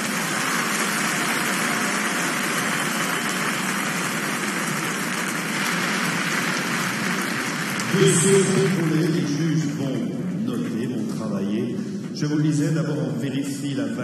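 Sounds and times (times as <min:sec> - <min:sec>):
crowd applauding and cheering: 0:00.0 - 0:09.9.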